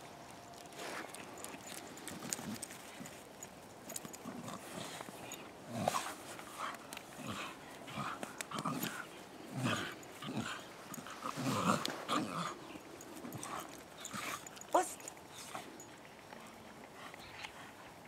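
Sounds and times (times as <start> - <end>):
dog growling: 7.2 - 14.5.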